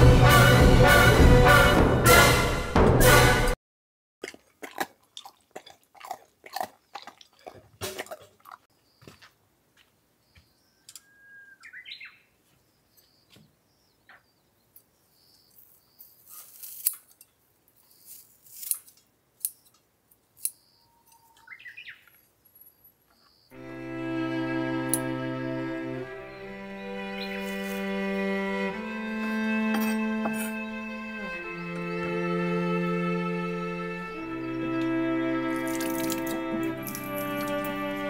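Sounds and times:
dog crunching dry kibble: 4.3s - 8.6s
birds chirping: 10.2s - 16.3s, 20.5s - 23.9s, 25.0s - 28.9s, 30.2s - 38.0s.

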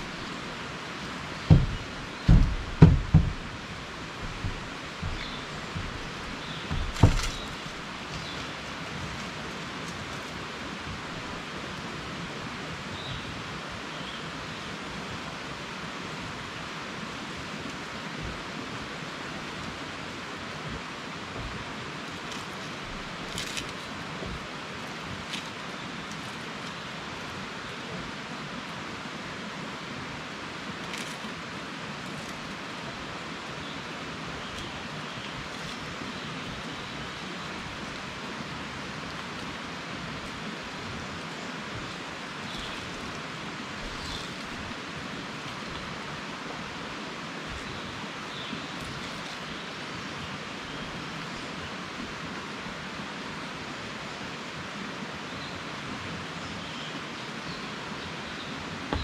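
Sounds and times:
water falling into pond: 0.0s - 11.7s, 30.5s - 51.4s.

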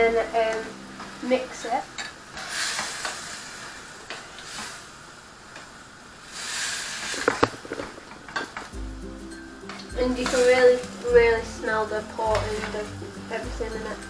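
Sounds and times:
meat sizzling in a frying pan: 0.0s - 5.0s, 6.2s - 7.6s.

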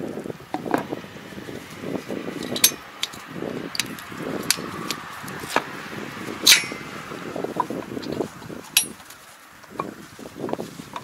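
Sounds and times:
metallic clinks and rattles: 2.4s - 5.6s, 6.4s - 6.9s, 8.8s - 9.2s
soft rustling: 7.6s - 11.0s.

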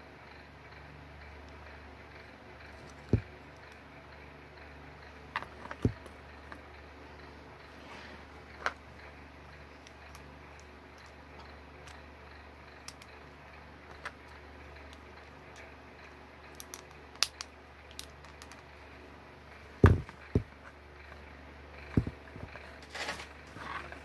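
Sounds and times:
faint low hum: 0.0s - 24.0s
plastic bricks clicking together: 16.4s - 18.7s.

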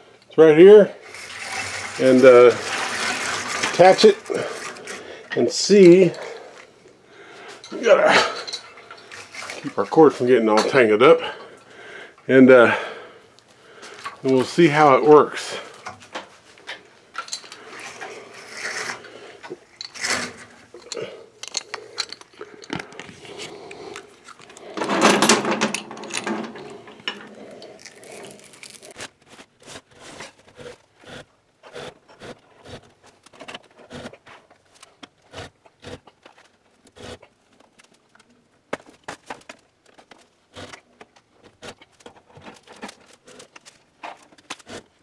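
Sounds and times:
pulley hoist clicks and knocks: 1.1s - 5.0s
metal chain and hook rattling: 17.1s - 18.9s, 19.7s - 22.8s, 24.6s - 28.8s.

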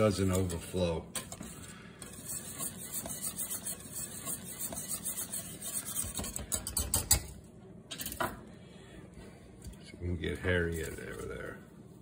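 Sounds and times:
wire whisk scraping metal pan: 0.0s - 7.3s.

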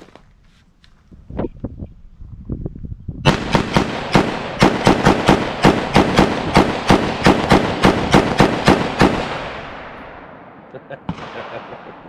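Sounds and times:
rapid semi-automatic rifle fire: 3.3s - 11.9s.

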